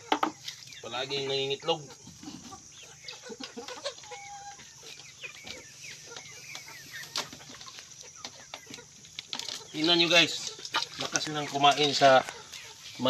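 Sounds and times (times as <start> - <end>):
chickens clucking: 0.0 - 13.0.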